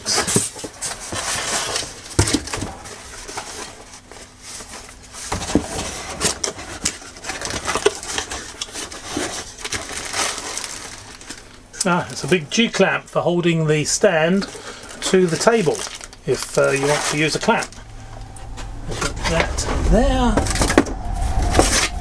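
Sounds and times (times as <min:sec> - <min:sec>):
cardboard rustling and scraping: 0:00.0 - 0:11.4, 0:14.5 - 0:17.8.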